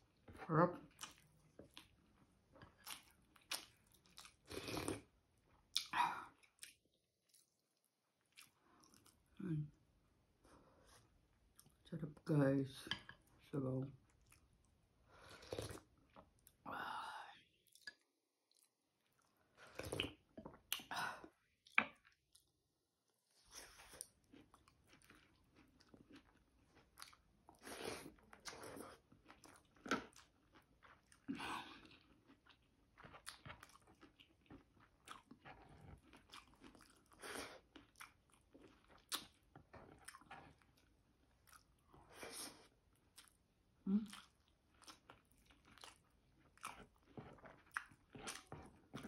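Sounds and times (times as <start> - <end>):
chewing and biting: 23.6 - 42.0, 44.0 - 49.0.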